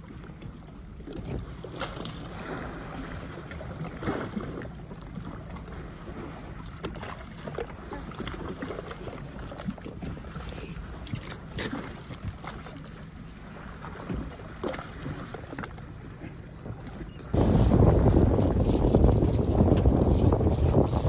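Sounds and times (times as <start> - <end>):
water lapping against boat hull: 0.0 - 21.0
water splashes: 0.0 - 21.0
wind buffeting microphone: 16.1 - 21.0.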